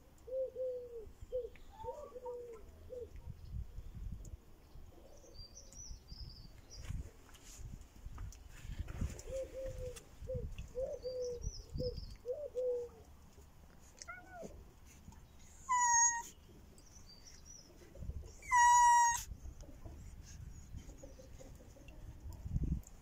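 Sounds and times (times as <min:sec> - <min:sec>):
cats meowing: 0:14.0 - 0:14.6, 0:15.6 - 0:16.3, 0:18.4 - 0:19.3.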